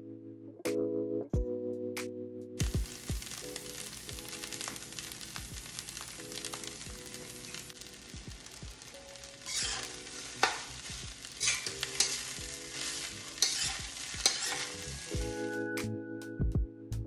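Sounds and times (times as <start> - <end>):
music: 0.0 - 17.0
rice sizzling in a wok: 2.6 - 15.7
spatula clanking against wok: 9.5 - 14.9.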